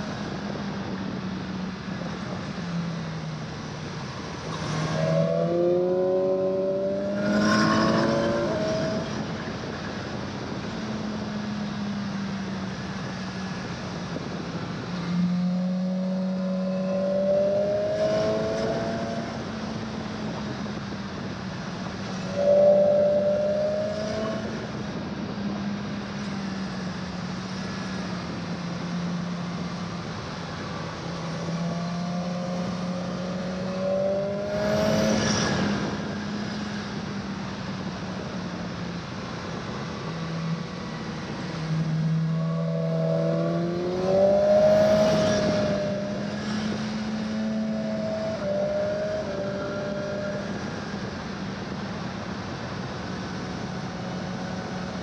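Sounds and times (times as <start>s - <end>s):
wind noise: 0.0s - 55.0s
motorcycle engine accelerating: 39.9s - 51.2s.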